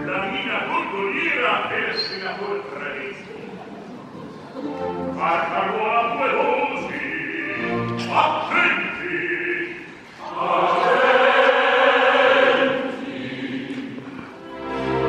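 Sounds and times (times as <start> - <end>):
orchestra playing: 4.6 - 8.5, 14.4 - 15.0
chorus singing: 4.7 - 15.0
man singing opera: 5.1 - 13.7.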